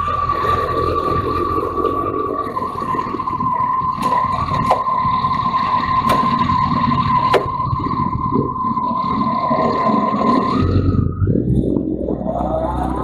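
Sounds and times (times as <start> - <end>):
steady high-pitched whine: 0.0 - 13.0.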